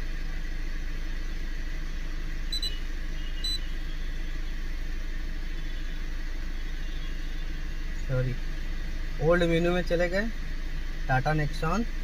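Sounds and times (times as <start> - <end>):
diesel engine idling: 0.0 - 12.0
short high beeps: 2.5 - 2.8.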